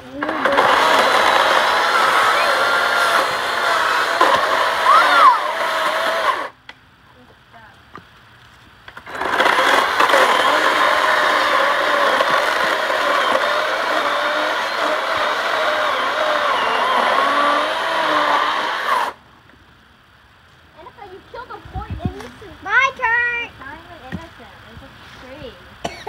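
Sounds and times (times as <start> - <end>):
electric chainsaw cutting wood: 0.0 - 6.6, 9.0 - 19.2.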